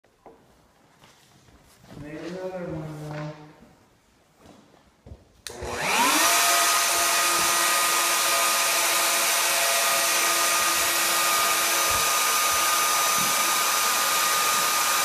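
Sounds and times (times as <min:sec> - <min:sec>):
electric motor whining: 0:05.5 - 0:15.0.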